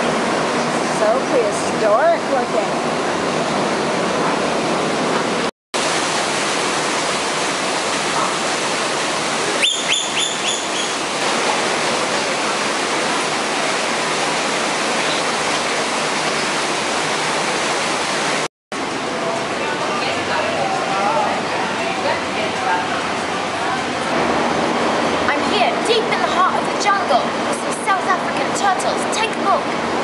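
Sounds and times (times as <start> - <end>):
falling water rushing: 0.0 - 30.0
bird chirping: 9.6 - 11.0.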